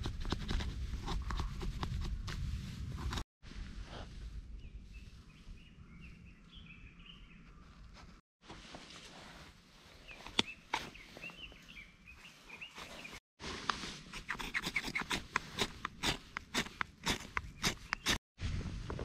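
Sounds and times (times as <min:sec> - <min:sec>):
bird chirping: 0:04.6 - 0:07.8, 0:10.0 - 0:13.2
knife scraping fire-starter rod: 0:14.0 - 0:18.2.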